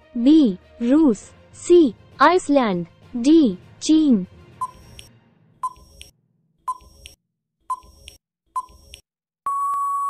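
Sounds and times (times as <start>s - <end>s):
short electronic beeps: 4.6s - 6.1s, 6.7s - 10.0s
clicking ticks: 5.7s - 6.1s, 6.7s - 7.2s
long steady beep: 9.5s - 10.0s.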